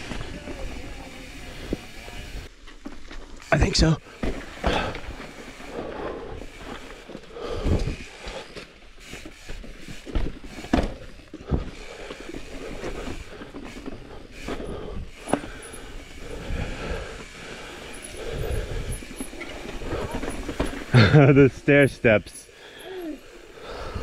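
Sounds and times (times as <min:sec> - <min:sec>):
mountain bike rolling over rocks: 0:00.0 - 0:24.0
bike clunks: 0:04.1 - 0:16.1, 0:17.8 - 0:21.4
bike knocks and rattles: 0:04.1 - 0:16.1, 0:17.9 - 0:21.4.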